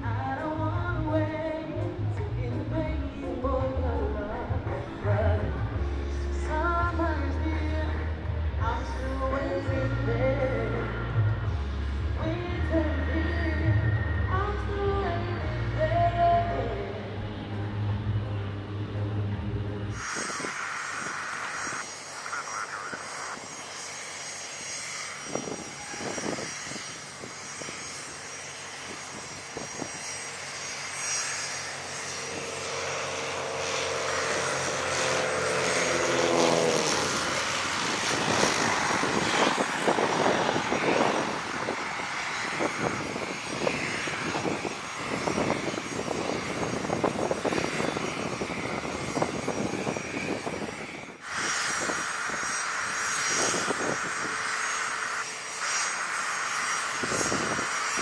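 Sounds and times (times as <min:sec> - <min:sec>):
propeller plane droning overhead: 0:00.0 - 0:58.0
loud rushing noise: 0:17.0 - 0:23.5, 0:33.4 - 0:58.0.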